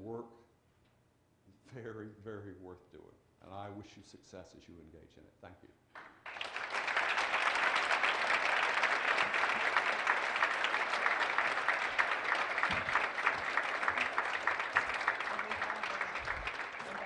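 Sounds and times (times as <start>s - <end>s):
audience applauding: 6.2s - 17.0s.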